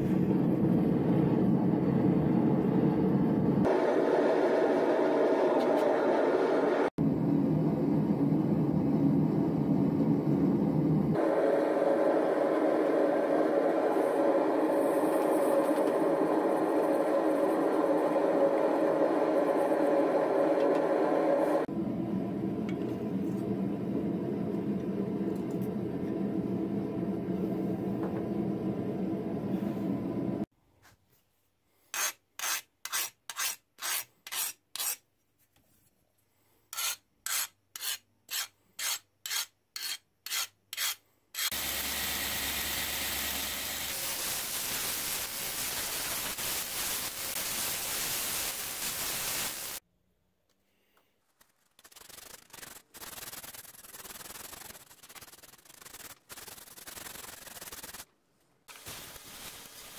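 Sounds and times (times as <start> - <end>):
sandpaper rubbing along blade: 31.9 - 35.0, 36.7 - 41.6, 51.8 - 58.1
file scraping steel blade: 31.9 - 35.1, 36.7 - 41.6.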